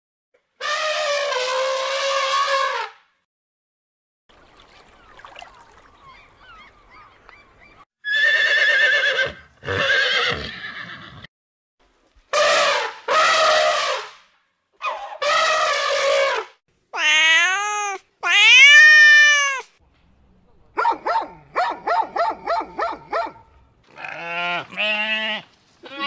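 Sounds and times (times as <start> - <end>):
horse whinnying: 8.0 - 11.3.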